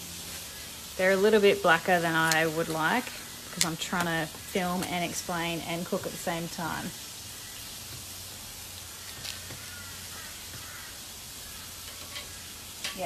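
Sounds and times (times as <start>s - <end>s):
vegetables sizzling on a grill: 0.0s - 13.0s.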